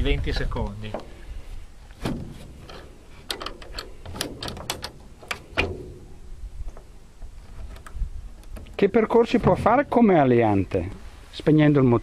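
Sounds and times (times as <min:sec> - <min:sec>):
light clicks and knocks of panel: 0:02.0 - 0:08.9.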